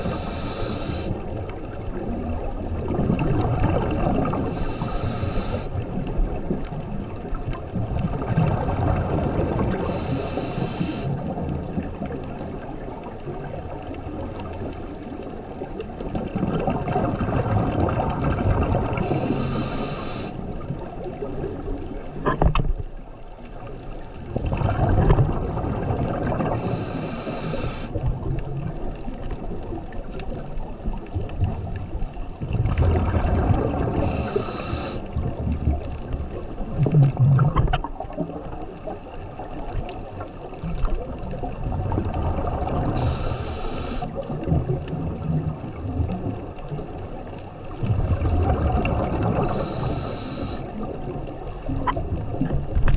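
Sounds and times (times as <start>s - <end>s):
regulator hissing inhales: 0.0s - 1.3s, 4.5s - 5.8s, 9.8s - 11.2s, 19.0s - 20.4s, 26.5s - 28.0s, 34.0s - 35.1s, 42.9s - 44.2s, 49.4s - 50.7s
bubbly exhaled air rumbles: 0.0s - 15.1s, 15.9s - 22.4s, 24.2s - 52.9s.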